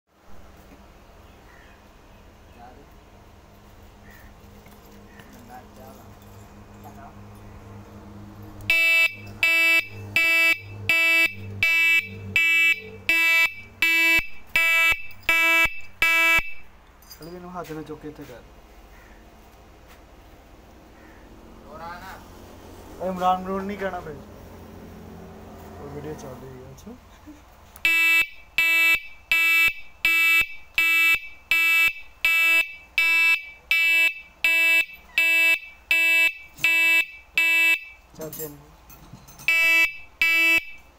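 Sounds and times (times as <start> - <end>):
electric horn beeping: 8.6 - 16.7, 27.8 - 38.0, 39.5 - 40.9.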